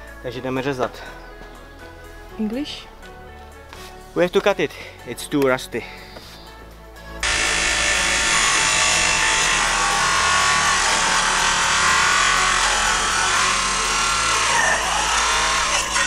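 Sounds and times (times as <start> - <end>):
angle grinder cutting metal: 7.2 - 16.0.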